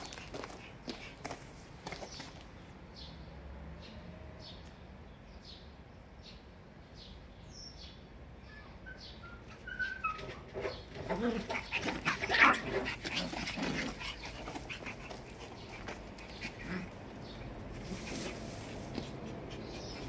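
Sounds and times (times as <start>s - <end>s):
puppies whimpering yelps: 8.6s - 12.7s
puppies barking: 9.4s - 20.0s.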